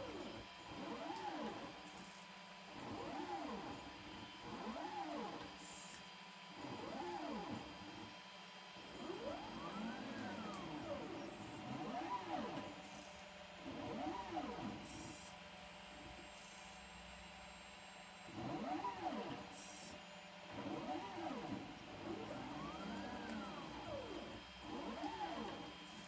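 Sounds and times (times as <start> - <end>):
robotic arm motors whining: 8.8 - 13.0, 13.6 - 15.4, 18.2 - 26.0.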